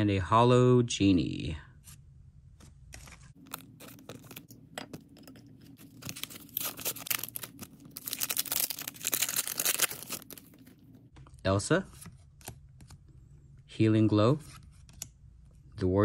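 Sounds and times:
foil wrapper crinkling and tearing: 3.3s - 4.5s, 5.8s - 10.8s.

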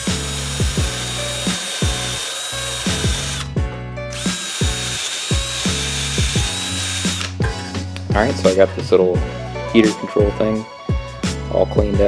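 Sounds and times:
cordless drill spinning: 0.0s - 7.4s
background music with steady beat: 0.0s - 12.0s.

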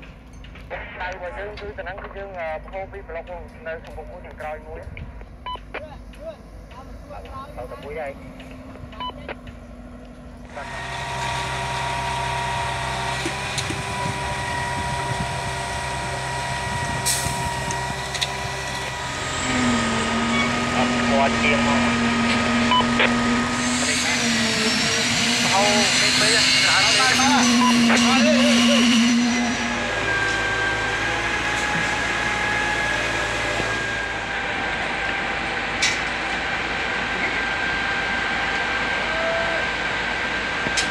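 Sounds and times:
diesel truck engines running: 0.0s - 40.9s.

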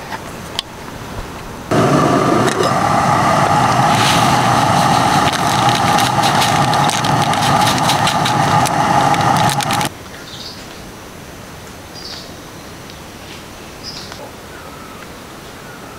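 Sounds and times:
gas stove burning: 1.7s - 9.9s
foil packet crinkling: 3.8s - 9.9s.

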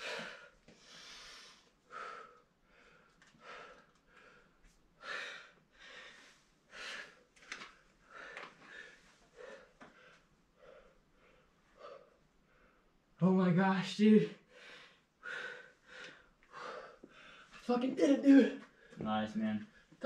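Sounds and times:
person breathing hard: 0.0s - 7.3s, 8.0s - 13.0s, 14.4s - 17.6s.

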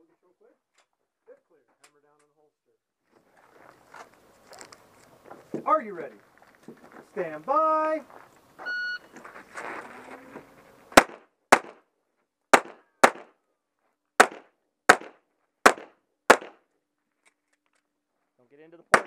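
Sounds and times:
electronic start beep: 8.6s - 9.1s
pistol shots: 11.0s - 11.8s, 12.5s - 13.4s, 14.2s - 16.6s.

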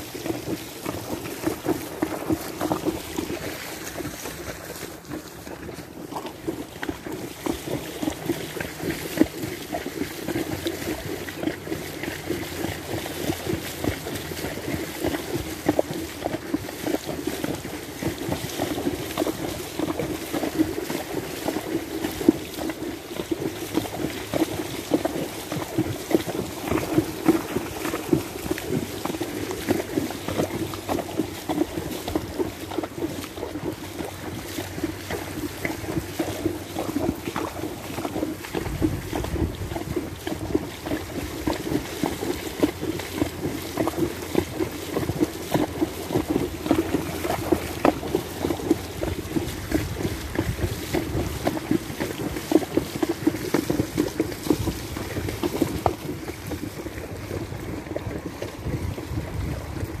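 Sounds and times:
hooves splashing through water: 0.0s - 60.0s
wind buffeting microphone: 38.4s - 40.6s, 48.8s - 51.5s, 53.9s - 60.0s.

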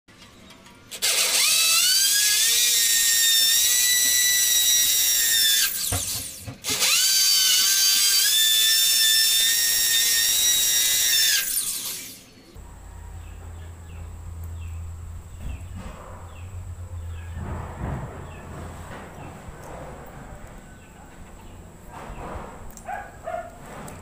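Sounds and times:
electric drill whining: 0.9s - 12.3s.

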